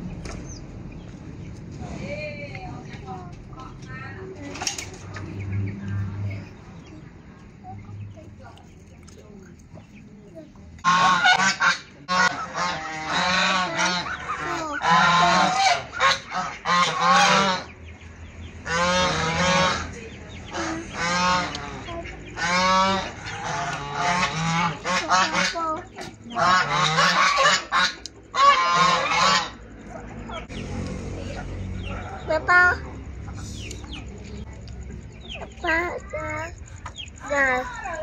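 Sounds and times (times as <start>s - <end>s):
geese honking: 10.8s - 38.0s.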